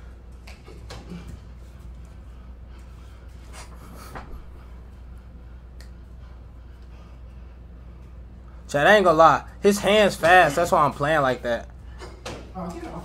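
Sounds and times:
low hum: 0.0s - 10.1s.

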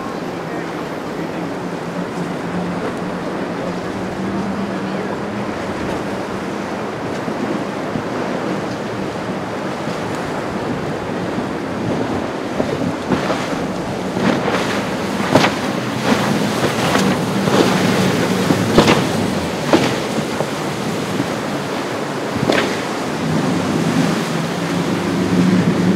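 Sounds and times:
boat engine hum: 0.0s - 25.9s
rough surf and choppy water: 0.0s - 25.9s
wind buffeting microphone: 0.0s - 25.9s.

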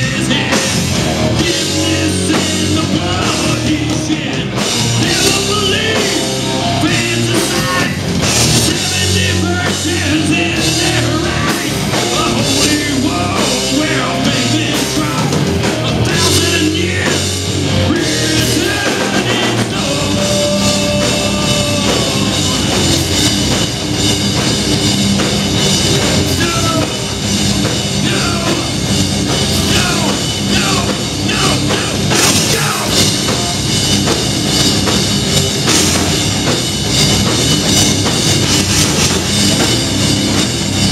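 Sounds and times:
person singing: 0.0s - 8.0s, 8.6s - 23.1s, 28.0s - 33.6s
bass guitar: 0.0s - 40.9s
distorted electric guitar: 0.0s - 40.9s
drum kit: 0.0s - 40.9s.

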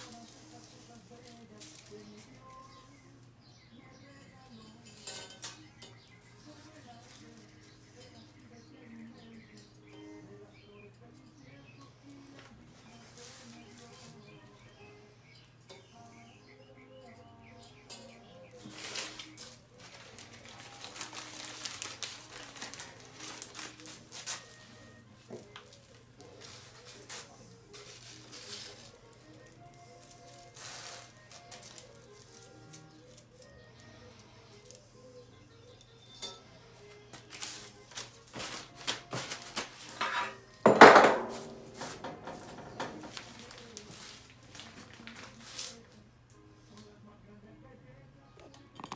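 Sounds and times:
plastic bag crinkling: 18.7s - 24.6s, 27.8s - 29.3s, 42.5s - 45.8s.

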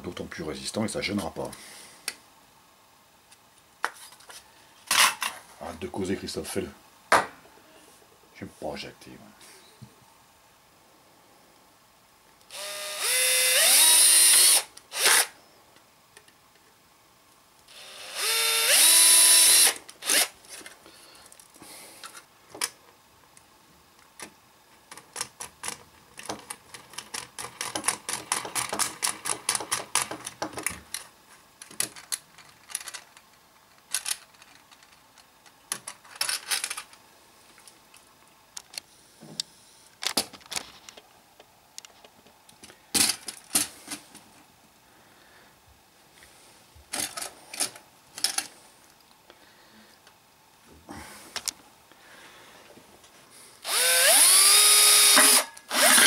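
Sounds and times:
electric drill boring through metal: 12.5s - 15.3s, 17.7s - 20.3s, 53.6s - 56.0s
small metallic clicks and rattles: 24.9s - 37.0s, 46.9s - 49.1s.

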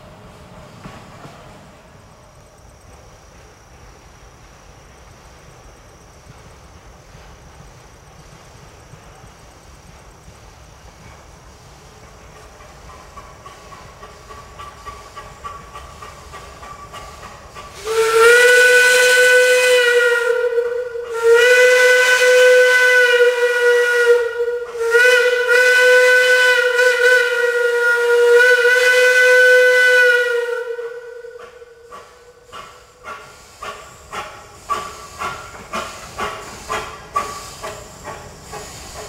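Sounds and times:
faint locomotive running: 0.0s - 39.0s
steam locomotive whistle blasts: 17.7s - 32.7s.

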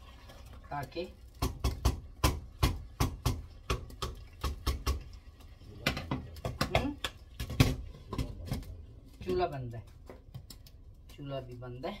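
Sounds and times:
wooden spatula knocking on pot: 1.4s - 5.1s, 5.8s - 10.5s.

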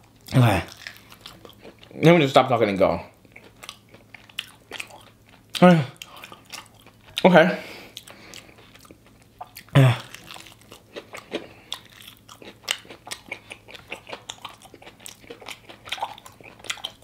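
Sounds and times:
chewing crispy chicken: 0.0s - 2.1s, 3.1s - 17.0s
person humming or grunting: 9.7s - 10.1s.

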